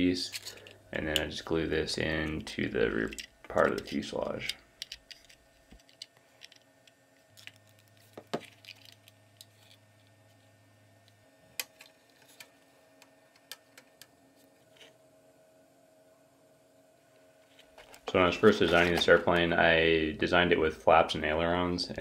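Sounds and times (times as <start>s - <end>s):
plastic parts clicking and tapping: 3.0s - 9.8s.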